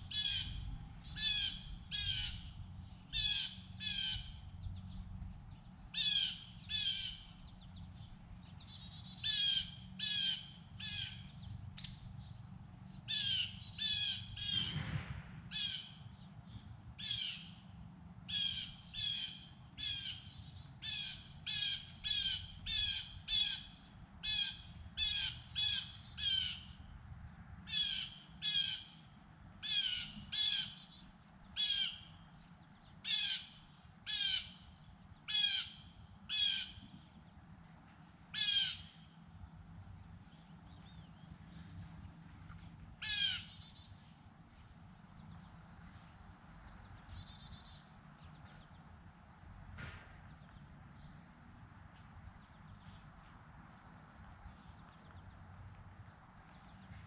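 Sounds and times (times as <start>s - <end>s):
low steady rumble: 0.0s - 57.0s
bird cawing: 29.6s - 30.9s, 33.1s - 34.6s, 35.3s - 36.8s, 38.3s - 39.1s, 43.0s - 43.9s.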